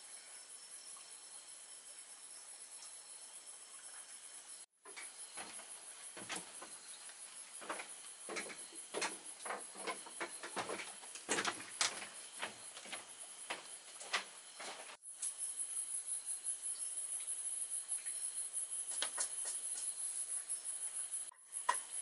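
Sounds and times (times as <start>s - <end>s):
crickets chirping: 0.0s - 22.0s
footsteps on bamboo floor: 5.3s - 15.0s.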